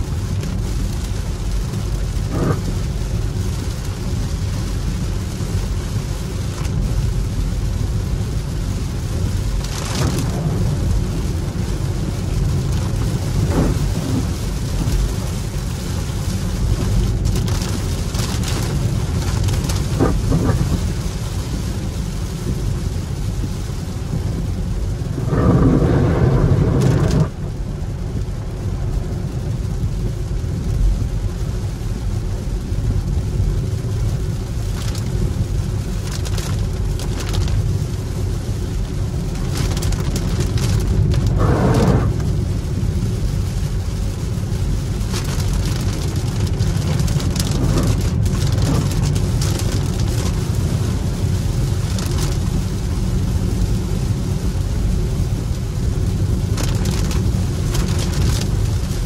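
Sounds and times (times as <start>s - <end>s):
tyre and road rumble: 0.0s - 5.5s, 7.9s - 21.2s, 23.5s - 27.7s, 34.6s - 43.2s, 44.2s - 53.2s
hiss of water and rain: 0.0s - 59.0s
loud rush: 25.1s - 27.4s, 41.2s - 42.3s.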